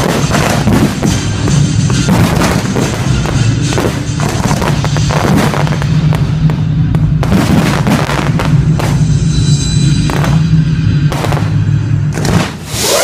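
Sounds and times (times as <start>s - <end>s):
fireworks bangs: 0.0s - 13.0s.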